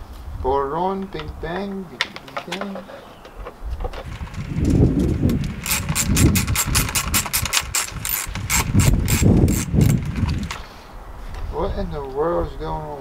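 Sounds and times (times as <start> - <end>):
low dull bumps: 0.9 - 7.2
ratchet wrench clicking: 5.6 - 10.6.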